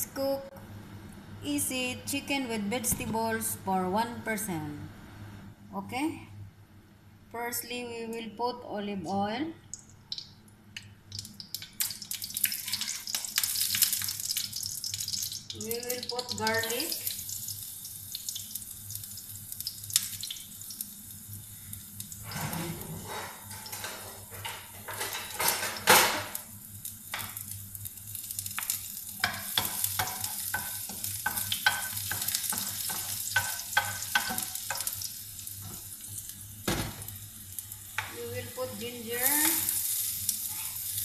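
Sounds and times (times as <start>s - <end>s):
garlic sizzling in oil: 11.1s - 41.0s.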